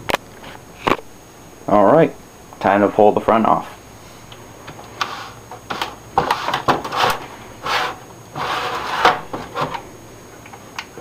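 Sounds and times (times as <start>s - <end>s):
computer case panel scraping and clicking: 5.0s - 9.8s.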